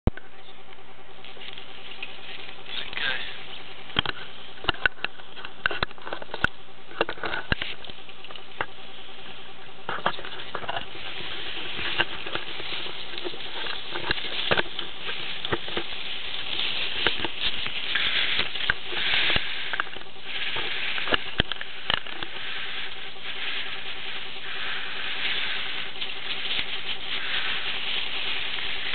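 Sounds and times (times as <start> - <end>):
skis scraping crusty snow: 1.2 - 28.9.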